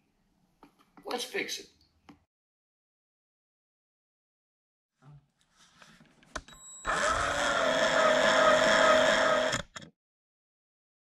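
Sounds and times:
electric drill motor whine: 0:06.8 - 0:09.9.

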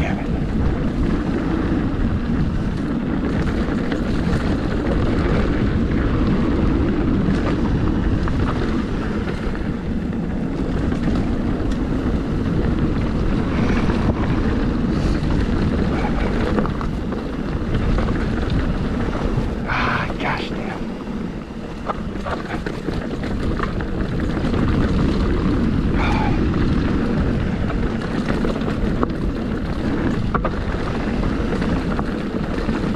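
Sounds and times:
bike clicks and rattles: 0:00.0 - 0:32.9
bike tyres rolling on dirt: 0:00.0 - 0:32.9
wind rushing over microphone: 0:00.0 - 0:32.9.

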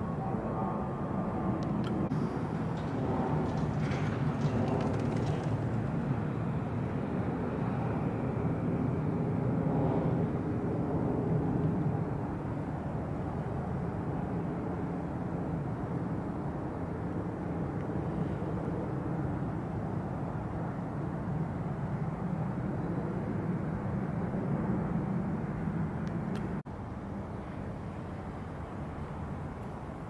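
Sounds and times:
distant engine rumble: 0:01.4 - 0:06.8.

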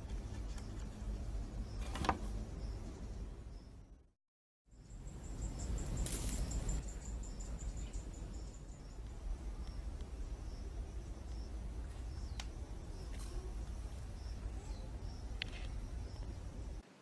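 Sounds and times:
steady low rumble: 0:04.7 - 0:16.8.

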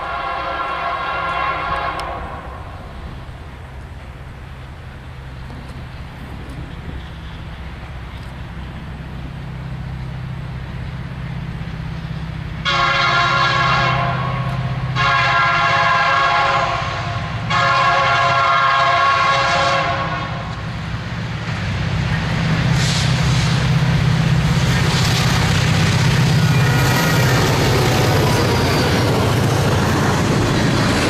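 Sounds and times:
locomotive air horn blasts: 0:00.0 - 0:02.8, 0:12.6 - 0:20.5
locomotive engine rumble: 0:00.0 - 0:31.0.

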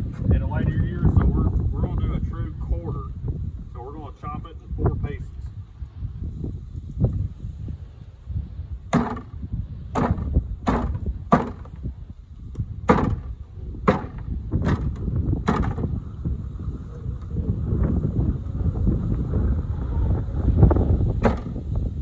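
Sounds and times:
wind rumble on microphone: 0:00.0 - 0:22.0
chopping blows on wooden block: 0:08.9 - 0:09.3, 0:09.9 - 0:11.8, 0:12.9 - 0:15.9, 0:21.2 - 0:21.6.

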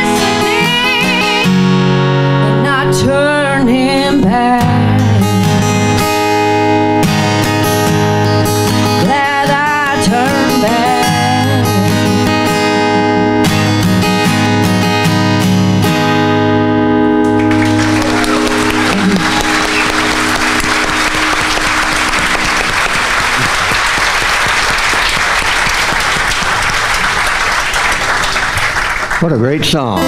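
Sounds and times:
acoustic guitar strumming: 0:00.0 - 0:27.4, 0:29.3 - 0:30.0
audience applause: 0:17.2 - 0:29.9.

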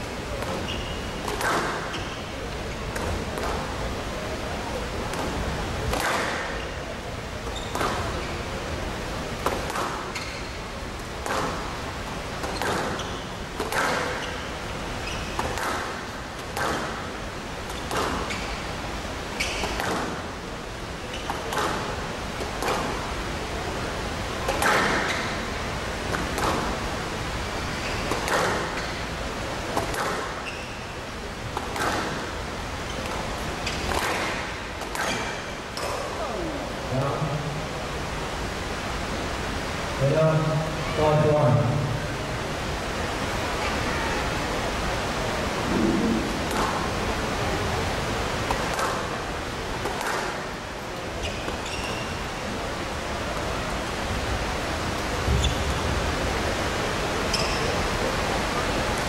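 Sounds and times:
ball hitting court walls: 0:00.4 - 0:02.2, 0:05.1 - 0:06.6, 0:09.4 - 0:10.4, 0:11.2 - 0:11.7, 0:12.4 - 0:14.4, 0:15.4 - 0:17.0, 0:17.7 - 0:18.4, 0:19.4 - 0:20.2, 0:21.2 - 0:23.0, 0:26.1 - 0:26.8, 0:28.1 - 0:28.9, 0:29.8 - 0:30.6, 0:31.6 - 0:32.2, 0:33.0 - 0:36.0
racket hitting squash ball: 0:09.4 - 0:10.2, 0:11.2 - 0:11.7, 0:12.4 - 0:14.4, 0:15.4 - 0:17.0, 0:17.7 - 0:18.4, 0:19.6 - 0:20.2, 0:26.1 - 0:26.8, 0:28.1 - 0:28.8, 0:29.8 - 0:30.4, 0:31.6 - 0:32.3, 0:33.0 - 0:36.0.

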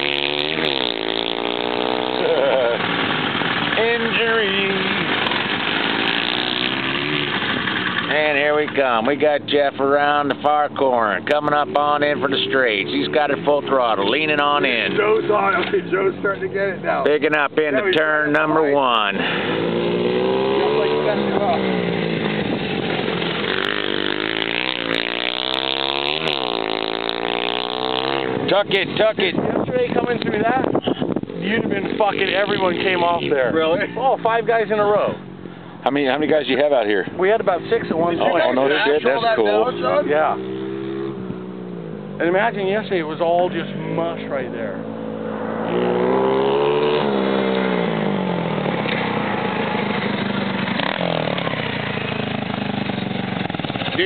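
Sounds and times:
minibike engines running hard: 0:00.0 - 0:09.5, 0:18.3 - 0:29.3, 0:45.8 - 0:54.0
small minibike engine running: 0:50.3 - 0:54.0.

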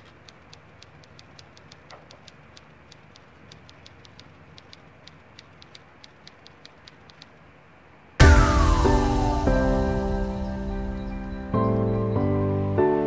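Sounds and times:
typewriter key clicks: 0:00.0 - 0:07.4.

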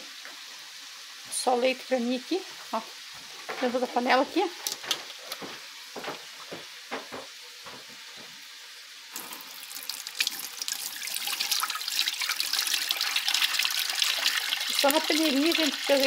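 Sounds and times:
milk pouring into metal pot: 0:09.1 - 0:15.9.

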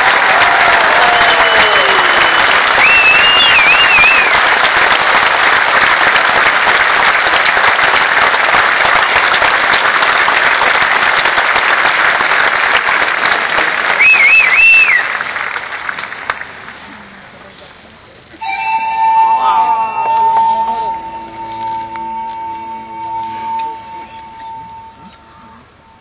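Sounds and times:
audience applauding: 0:00.0 - 0:17.4
high wavering whistle: 0:01.2 - 0:04.4, 0:18.4 - 0:25.6.

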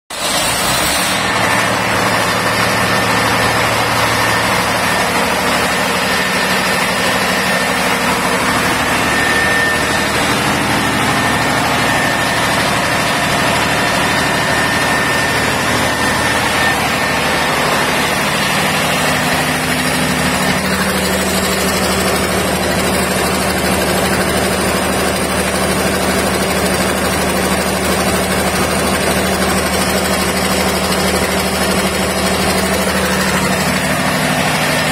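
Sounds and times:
diesel generator running: 0:00.1 - 0:34.9.

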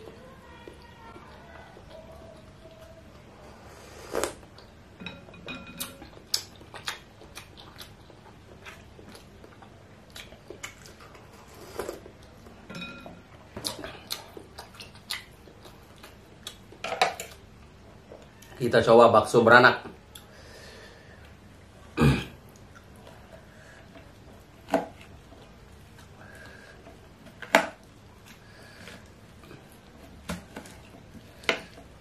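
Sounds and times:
chewing: 0:00.6 - 0:04.8, 0:05.8 - 0:12.6, 0:13.6 - 0:17.4.

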